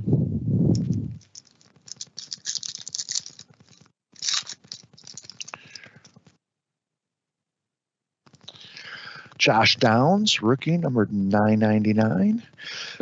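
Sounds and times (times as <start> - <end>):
wrapper crinkling: 1.2 - 6.3.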